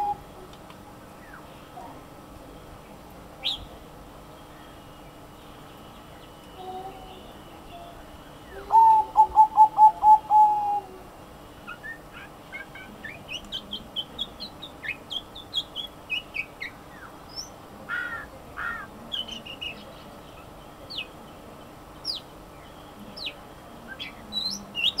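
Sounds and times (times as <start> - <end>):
dove cooing: 0.0 - 0.5, 6.6 - 13.8
small birds chirping: 0.0 - 25.0.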